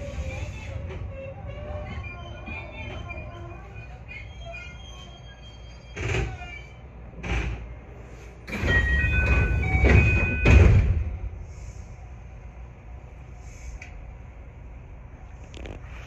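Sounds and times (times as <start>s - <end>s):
train doors thudding shut: 8.5s - 11.3s.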